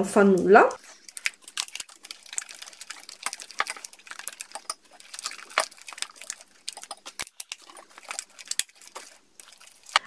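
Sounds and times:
spatula stirring slime in bowl: 0.8s - 10.0s.

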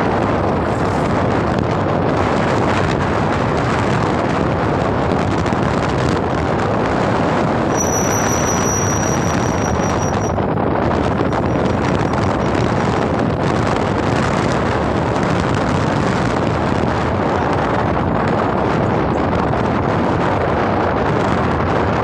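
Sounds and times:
wind rushing over microphone: 0.0s - 22.0s
thin high whistle: 7.7s - 10.4s.

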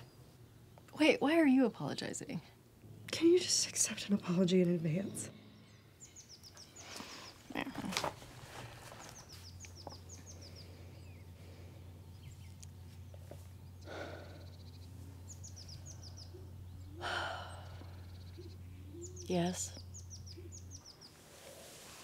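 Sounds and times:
songbird singing: 0.0s - 21.8s
low steady hum: 0.0s - 22.0s.

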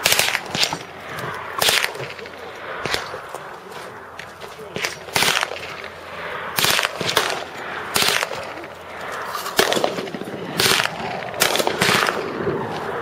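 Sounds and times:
machine-gun bursts: 8.0s - 8.5s.

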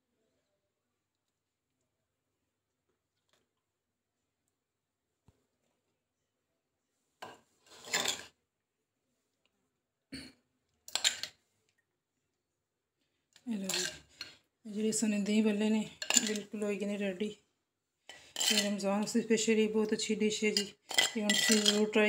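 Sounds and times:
spoon scraping a bowl: 7.6s - 8.3s, 13.6s - 14.4s, 15.9s - 16.5s, 18.1s - 18.8s, 20.4s - 22.0s.

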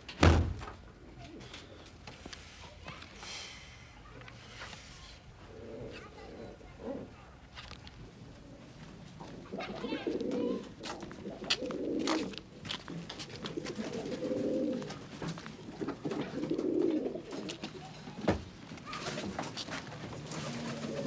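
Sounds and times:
pigeons cooing: 5.5s - 7.1s, 9.2s - 12.7s, 13.3s - 18.0s, 20.1s - 21.0s.

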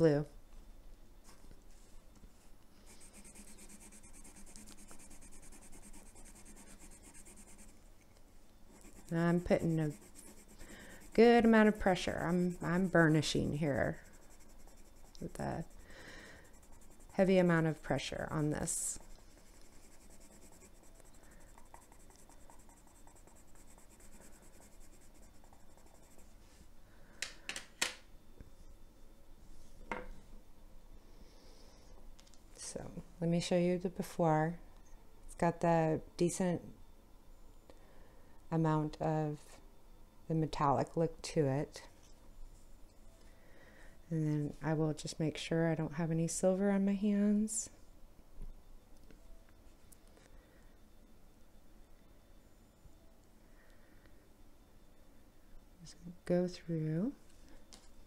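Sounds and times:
pencil scribbling on paper: 2.9s - 7.8s, 8.7s - 15.8s, 16.4s - 18.1s, 18.9s - 26.3s.

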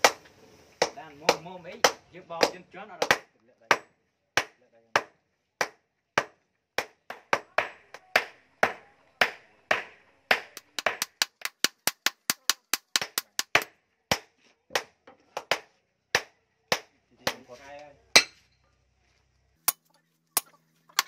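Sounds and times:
hammer striking steel on anvil: 18.2s - 18.4s.

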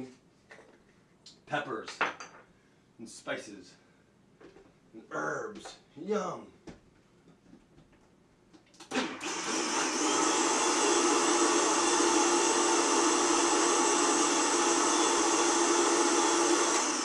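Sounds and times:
blender running: 8.8s - 17.0s.

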